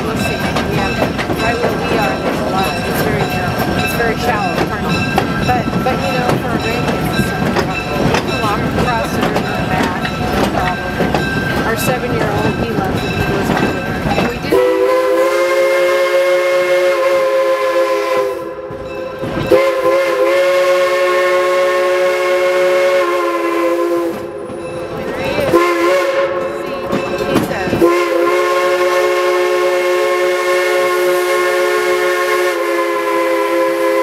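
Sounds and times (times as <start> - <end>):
train rumble: 0.0 - 34.0
locomotive chime horn blasts: 12.2 - 24.5, 25.3 - 34.0.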